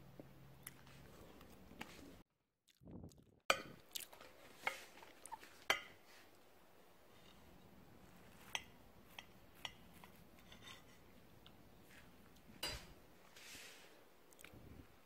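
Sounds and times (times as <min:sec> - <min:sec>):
knife clinking on ceramic plate: 0:12.6 - 0:12.9.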